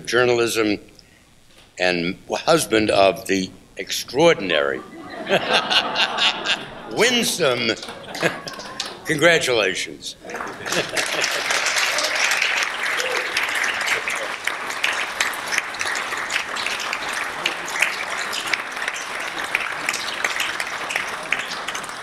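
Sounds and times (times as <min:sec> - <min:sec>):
audience applauding: 0:05.3 - 0:09.6, 0:10.2 - 0:22.0.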